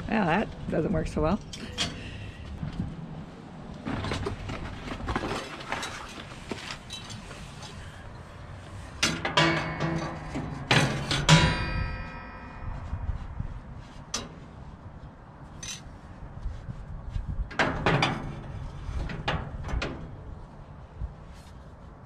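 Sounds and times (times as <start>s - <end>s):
metal grill parts clanking: 1.4s - 2.2s, 9.0s - 12.7s, 17.5s - 20.2s
metallic ring: 9.3s - 14.4s.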